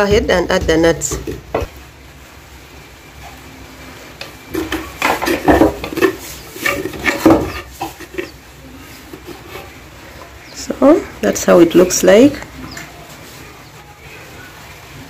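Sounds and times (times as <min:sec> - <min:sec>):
spoon scraping in a mortar: 0:04.4 - 0:10.4.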